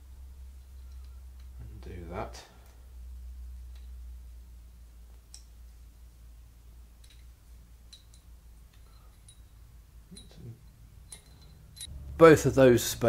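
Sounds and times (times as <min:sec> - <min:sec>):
low steady hum: 0:00.0 - 0:13.0
faint clicks of small parts: 0:00.6 - 0:01.7, 0:05.1 - 0:05.6, 0:07.0 - 0:11.9.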